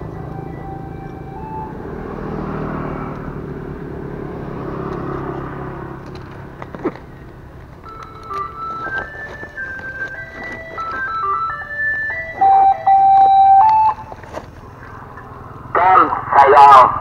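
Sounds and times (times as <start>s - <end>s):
simple electronic melody: 0.0s - 1.9s, 7.8s - 14.2s
vehicle passing with low rumble: 0.0s - 17.0s.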